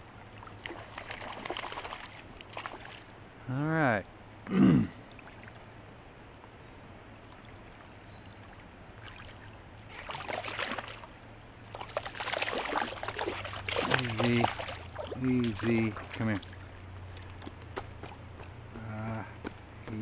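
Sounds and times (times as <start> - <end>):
fish splashing in water: 0.4 - 3.1, 7.3 - 17.3.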